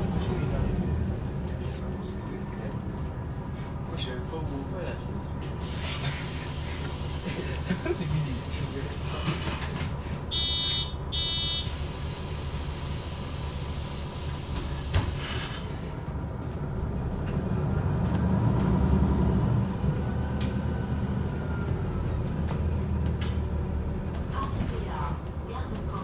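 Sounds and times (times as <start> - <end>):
bus engine rumbling: 0.0 - 26.0
door warning beep: 10.3 - 11.7.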